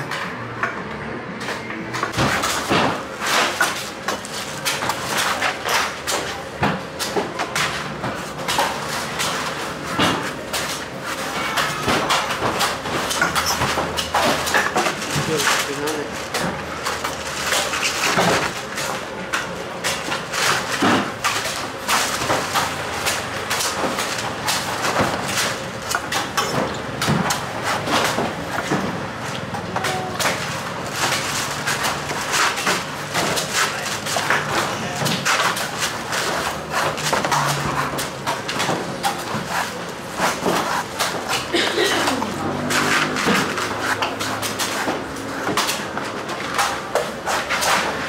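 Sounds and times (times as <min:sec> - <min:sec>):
market voices: 0:00.0 - 0:48.0
knife chopping coconuts: 0:19.7 - 0:48.0.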